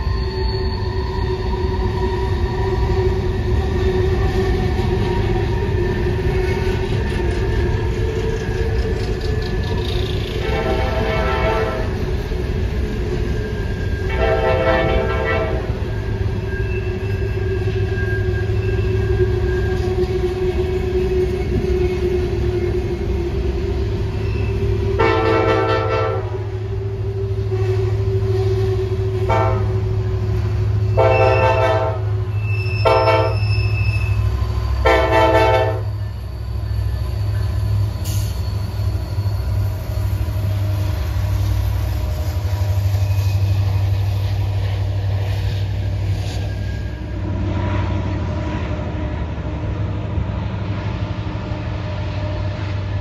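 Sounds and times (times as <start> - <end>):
locomotive engines rumbling: 0.0 - 53.0
diesel locomotive horn blasts: 10.2 - 12.2, 14.0 - 16.1, 23.5 - 36.1.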